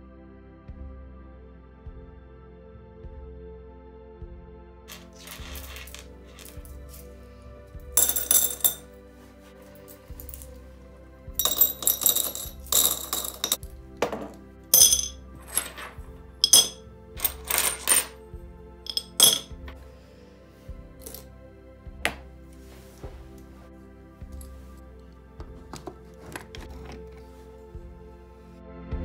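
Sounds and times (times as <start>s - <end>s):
sea glass clinking into glass jar: 8.0s - 8.8s, 11.4s - 13.6s, 14.8s - 18.2s, 18.9s - 19.6s.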